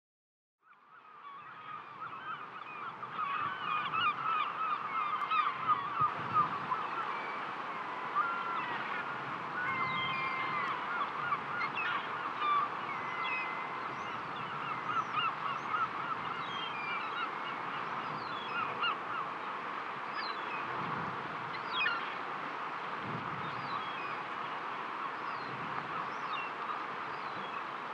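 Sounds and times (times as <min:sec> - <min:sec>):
flock of birds calling: 0:01.0 - 0:20.7, 0:21.5 - 0:22.2.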